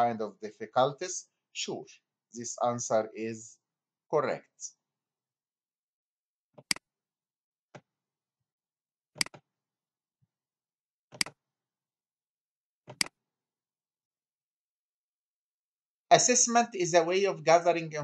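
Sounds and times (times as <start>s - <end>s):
computer mouse button clicks: 9.2s - 9.4s, 11.2s - 11.4s, 12.9s - 13.2s.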